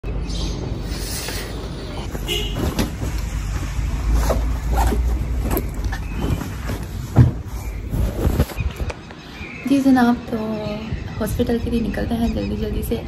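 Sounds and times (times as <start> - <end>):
rustles and light knocks: 2.0 - 9.1.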